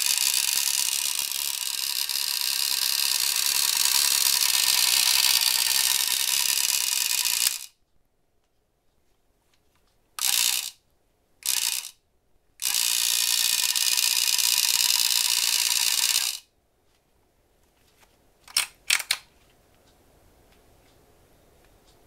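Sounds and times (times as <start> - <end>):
fishing reel clicking rapidly: 0.0 - 7.7, 10.2 - 10.8, 11.4 - 12.0, 12.6 - 16.5.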